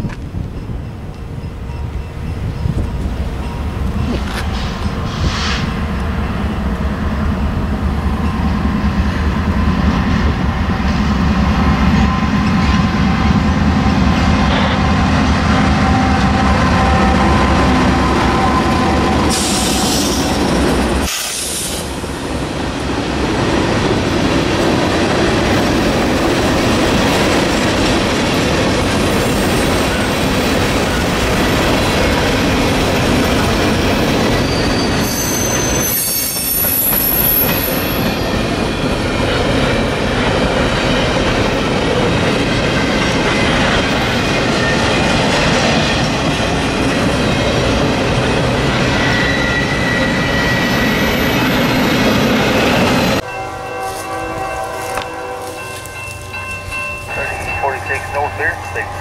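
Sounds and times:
train wheel noise: 0.0s - 59.0s
locomotive engine drone: 0.2s - 21.1s, 38.6s - 59.0s
high wheel squeal: 15.6s - 21.8s, 34.0s - 38.9s, 48.4s - 53.2s.

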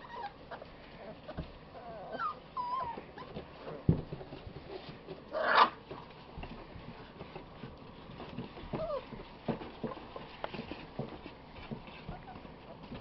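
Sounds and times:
puppies whimpering: 0.0s - 3.9s, 8.6s - 10.2s, 11.8s - 13.0s
puppy yapping: 5.3s - 5.8s.

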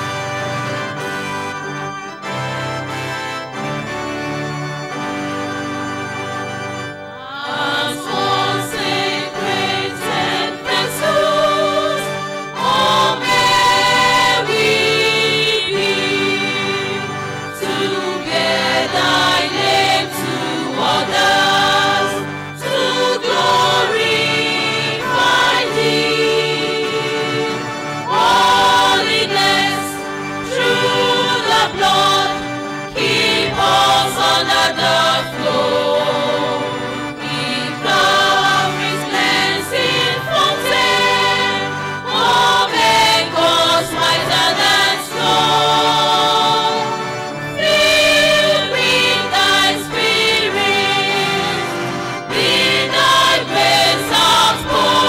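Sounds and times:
church choir singing: 0.0s - 55.0s.

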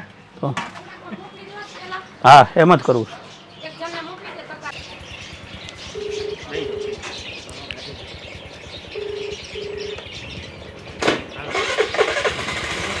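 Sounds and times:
street background noise: 0.0s - 13.0s
scooter engine starting: 4.8s - 13.0s
short electronic beeps: 5.9s - 7.0s, 8.9s - 10.0s.

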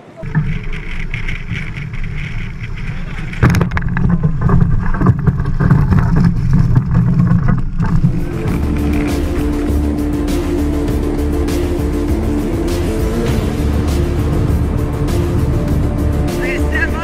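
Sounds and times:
water rushing past hull: 0.0s - 17.0s
music with held notes: 8.1s - 17.0s.

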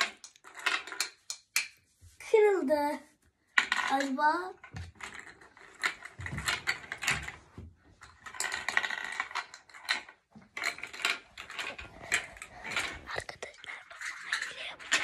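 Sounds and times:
plastic pieces clicking and clattering: 0.0s - 1.7s, 8.0s - 15.0s.

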